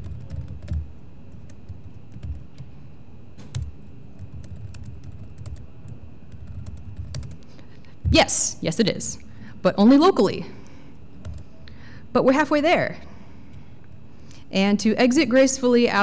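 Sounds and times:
typing on laptop keyboard: 0.0 - 2.7, 3.4 - 7.4.

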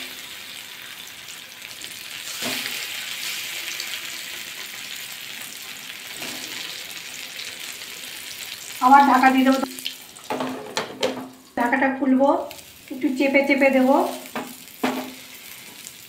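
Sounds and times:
vegetables sizzling in oil: 0.0 - 16.0
utensil knocking on pan: 10.3 - 11.4, 14.3 - 15.2.

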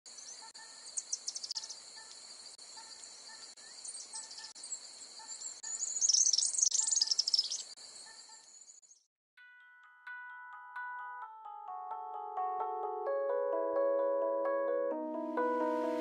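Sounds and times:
insects chirring: 0.1 - 9.0
birds chirping: 0.1 - 9.1.

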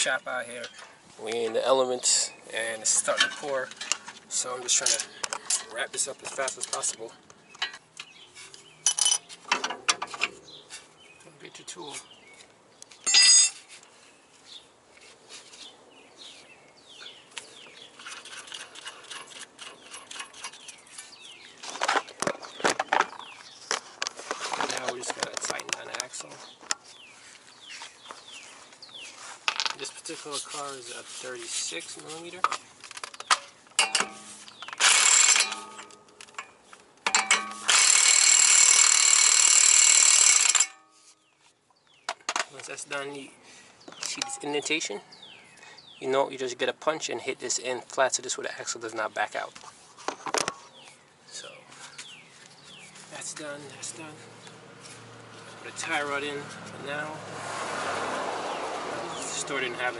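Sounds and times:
small birds chirping: 0.0 - 9.5, 10.1 - 34.8, 41.0 - 57.2, 58.4 - 59.9
metal tools clicking and knocking: 2.9 - 4.1, 4.7 - 5.8, 6.5 - 8.1, 8.8 - 10.4, 32.5 - 39.7, 44.0 - 44.5
impact wrench hammering: 37.1 - 40.9.

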